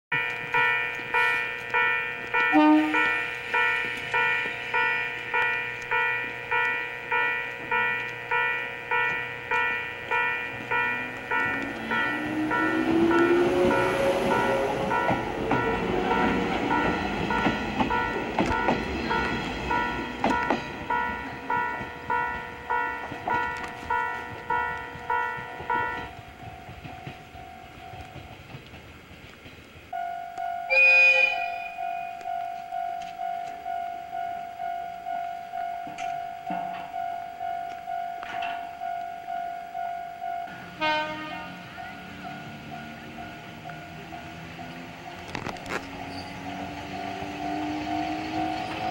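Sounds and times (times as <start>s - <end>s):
level crossing alarm ringing: 0.1s - 28.2s, 30.0s - 48.9s
wheel and rail noise: 0.1s - 48.9s
train motor whine: 9.4s - 20.8s, 40.5s - 48.9s.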